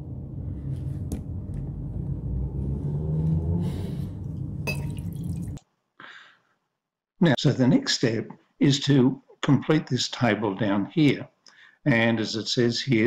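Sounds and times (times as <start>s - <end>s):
low room rumble: 0.0s - 5.6s.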